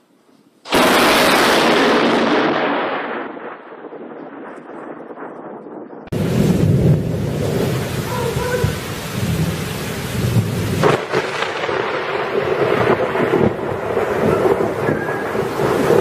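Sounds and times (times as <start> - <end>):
low rolling thunder: 0.7 - 16.0
thunder crack: 0.7 - 16.0
heavy rain pouring: 6.1 - 16.0.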